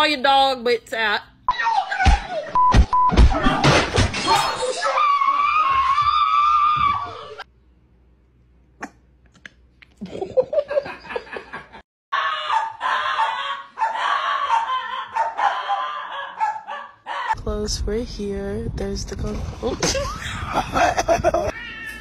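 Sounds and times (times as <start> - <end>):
person screaming: 12.1 - 15.1
dog howling: 12.2 - 17.4.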